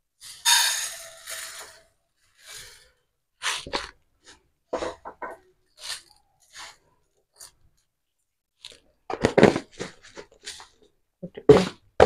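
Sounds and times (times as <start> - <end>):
hand scraping lentils in pan: 0.2 - 4.9.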